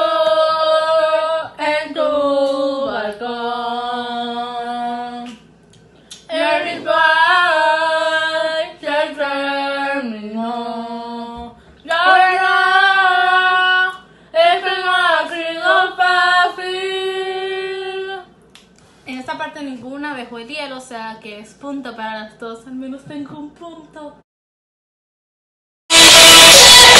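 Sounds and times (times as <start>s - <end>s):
women singing unaccompanied: 0.0s - 5.5s, 6.3s - 18.3s.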